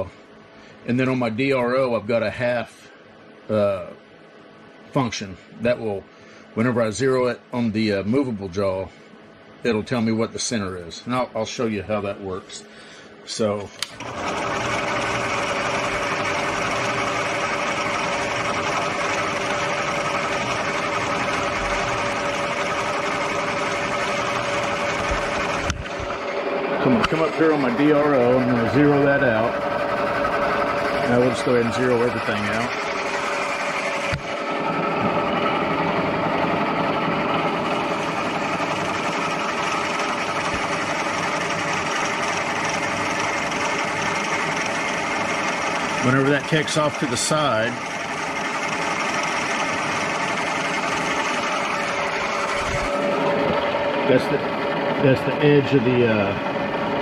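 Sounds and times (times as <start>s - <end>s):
constant whine: 0.0s - 57.0s
milling machine motor hum: 12.9s - 57.0s.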